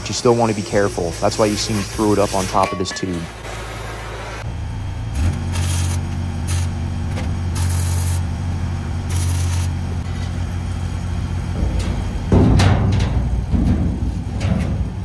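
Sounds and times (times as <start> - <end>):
welding sizzle: 0.0 - 11.6
engine idling: 2.9 - 15.0
loud knock: 11.6 - 14.8.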